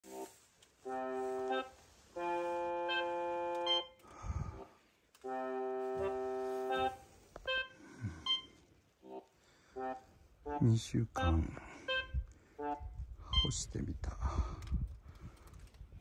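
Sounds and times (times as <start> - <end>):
organ-like keyboard chords: 0.9 - 4.0, 5.2 - 12.9.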